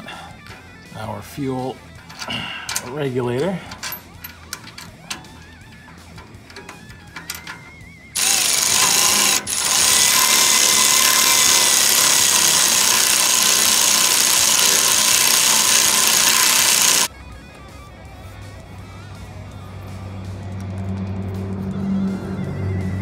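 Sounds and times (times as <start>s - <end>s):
power tool running: 8.2s - 17.1s.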